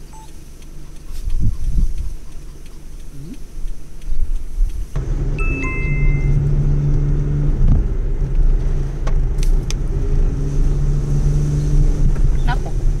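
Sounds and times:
car engine and road noise: 0:00.0 - 0:13.0
two-note electronic beep: 0:05.4 - 0:06.6.

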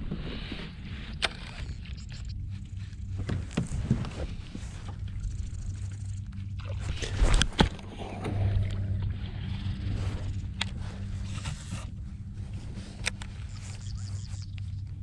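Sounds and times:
steady low hum: 0:00.0 - 0:15.0
reel spool whirring: 0:13.2 - 0:14.6.

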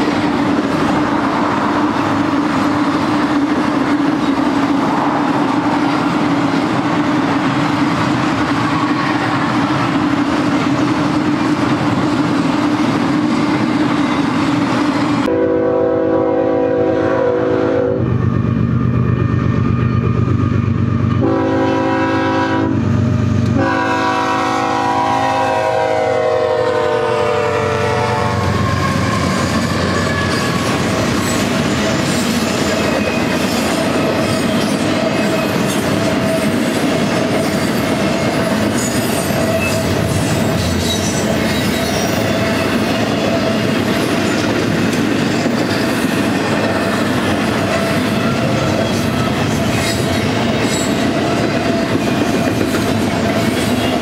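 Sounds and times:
freight train cars rumbling: 0:00.0 - 0:54.0
locomotive air horn blasts: 0:15.2 - 0:18.1, 0:21.2 - 0:22.9, 0:23.5 - 0:30.5
train wheel clatter: 0:28.7 - 0:54.0.

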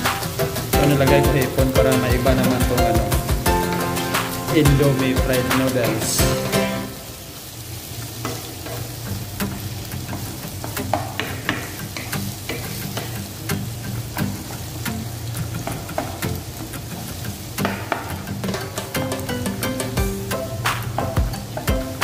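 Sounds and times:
food sizzling in oil: 0:00.0 - 0:22.0.

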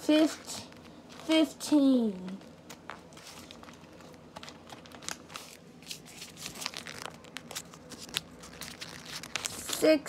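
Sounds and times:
paper crinkling: 0:02.1 - 0:10.0.

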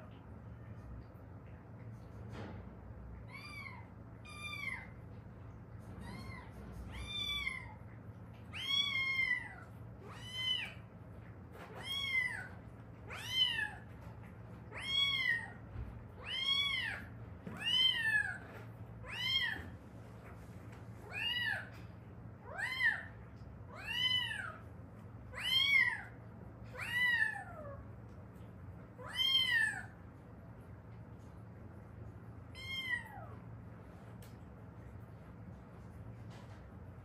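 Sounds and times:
cat meowing: 0:29.0 - 0:30.0, 0:32.5 - 0:33.4.

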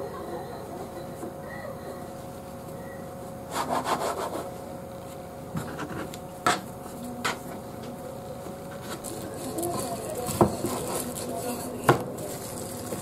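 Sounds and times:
steady hum: 0:00.0 - 0:13.0
dough scraper scraping: 0:03.5 - 0:04.5.

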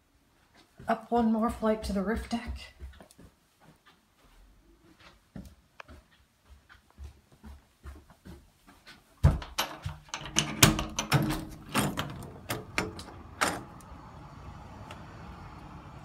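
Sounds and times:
soft footsteps on carpeted stairs: 0:00.0 - 0:10.2
door unlatched and opened: 0:09.4 - 0:14.0
steady outdoor hum: 0:10.1 - 0:16.0.

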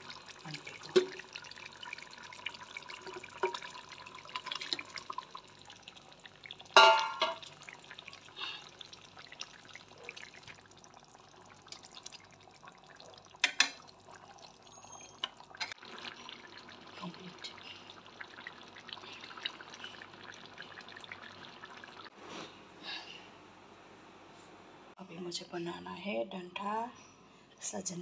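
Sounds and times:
curry bubbling in pan: 0:00.0 - 0:22.1
utensil clanking on metal pan: 0:06.8 - 0:07.5.

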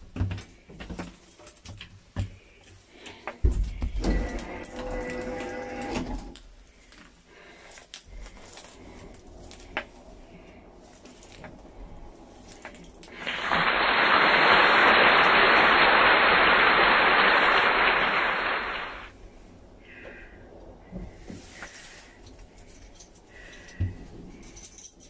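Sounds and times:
loud steady hiss: 0:13.1 - 0:19.1
faint rustling: 0:19.2 - 0:25.0.

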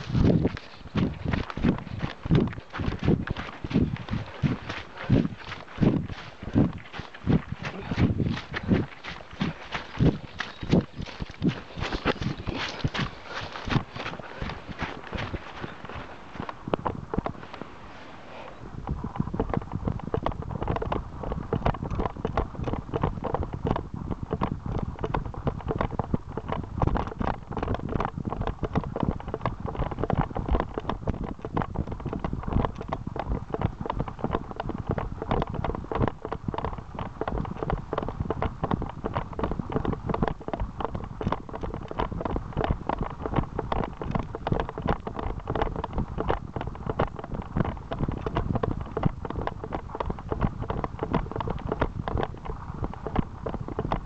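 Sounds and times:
running footsteps on dirt trail: 0:00.0 - 0:54.0.

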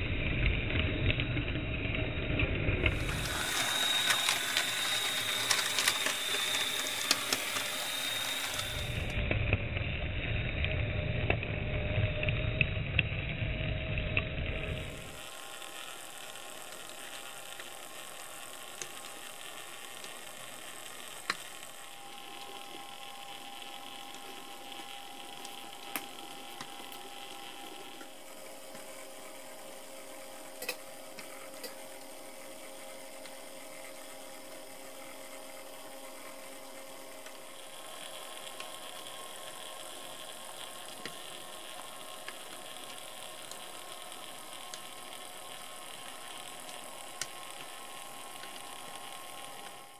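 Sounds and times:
model locomotive motor hum and whine: 0:00.0 - 0:49.9
scattered clicks: 0:18.6 - 0:23.5, 0:37.2 - 0:48.9.

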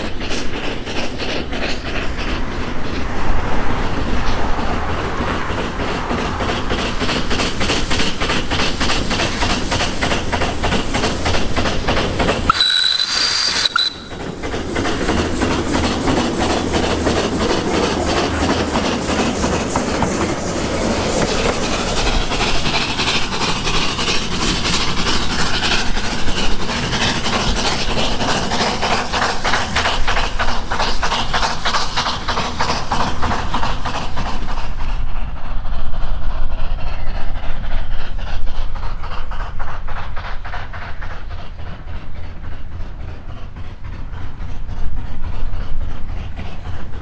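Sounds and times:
steam exhaust beating: 0:00.0 - 0:47.0
wheels on rails: 0:00.0 - 0:47.0
brief high-pitched tone: 0:12.5 - 0:14.2.

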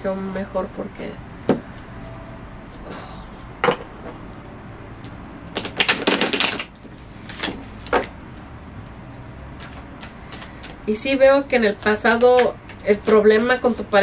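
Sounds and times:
cards being shuffled: 0:05.5 - 0:11.0.

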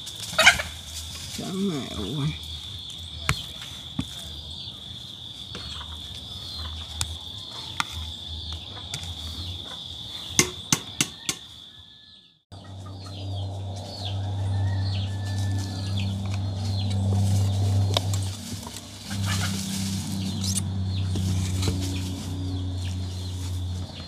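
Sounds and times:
high insect drone: 0:00.0 - 0:12.0, 0:12.6 - 0:24.0
low rumble: 0:12.5 - 0:24.0.

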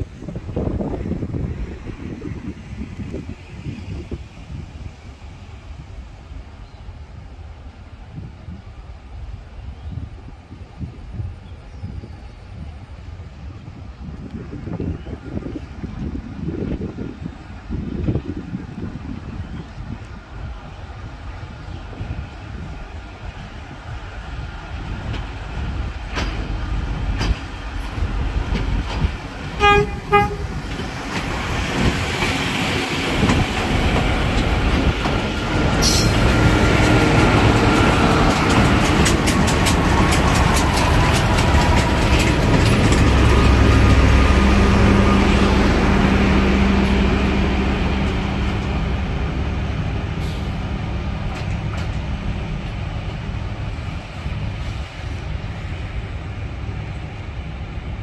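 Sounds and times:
diesel rail machines rolling: 0:00.0 - 0:58.0
horn toots: 0:29.6 - 0:30.6
wheels clicking over rail joints: 0:30.5 - 0:44.1.

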